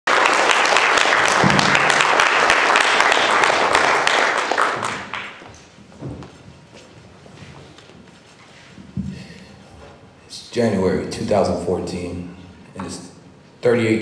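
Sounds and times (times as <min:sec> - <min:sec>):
audience applauding: 0:00.1 - 0:05.7.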